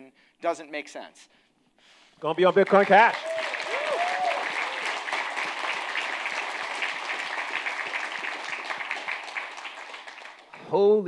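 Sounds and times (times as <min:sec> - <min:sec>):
audience applauding: 0:02.4 - 0:10.8.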